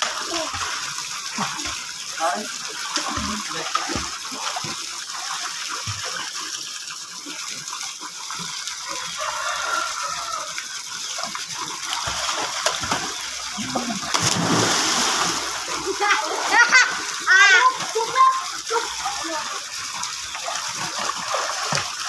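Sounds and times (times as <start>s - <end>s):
child splashing in pool: 11.6s - 22.0s
rushing water hiss: 12.1s - 19.7s.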